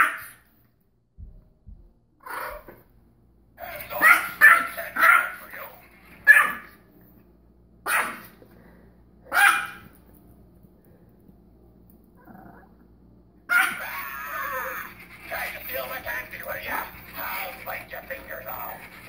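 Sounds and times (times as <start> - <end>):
small dog barking: 0.0 - 0.4, 4.0 - 5.4, 6.2 - 6.8, 7.8 - 8.3, 9.3 - 9.9, 13.5 - 13.8.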